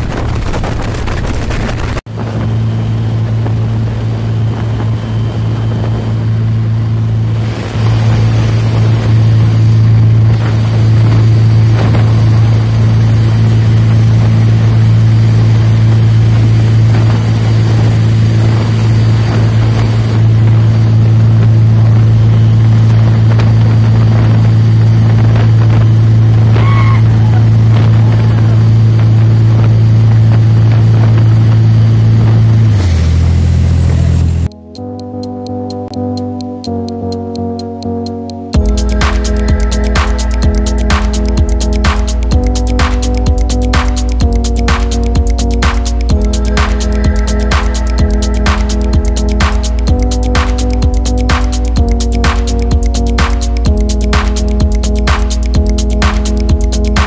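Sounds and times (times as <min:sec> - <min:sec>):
wind and water spray rushing: 0:00.0 - 0:34.5
boat diesel engines droning: 0:00.0 - 0:57.0.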